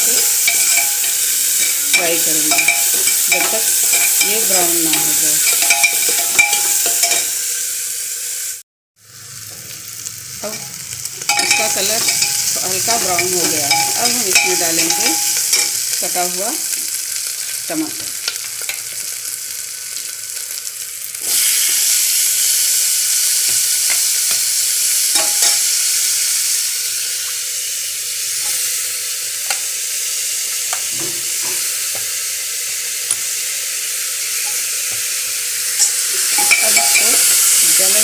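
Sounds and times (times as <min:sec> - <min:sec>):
spoon tapping and scraping: 0:00.0 - 0:07.4, 0:11.2 - 0:15.8, 0:23.4 - 0:24.5, 0:25.1 - 0:25.7, 0:35.8 - 0:37.3
oil sizzling in a cooker: 0:00.0 - 0:38.0.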